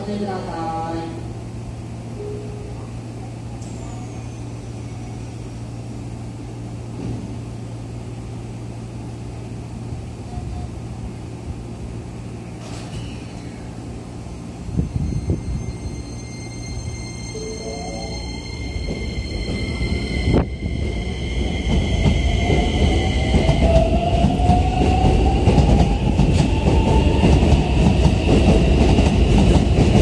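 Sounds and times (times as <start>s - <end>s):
electric train humming: 13.4s - 30.0s.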